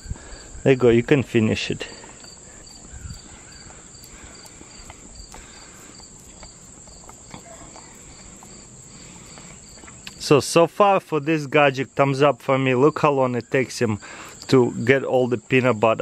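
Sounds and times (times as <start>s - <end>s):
high insect chirping: 0.0s - 16.0s
dog licking and smacking: 3.6s - 9.5s.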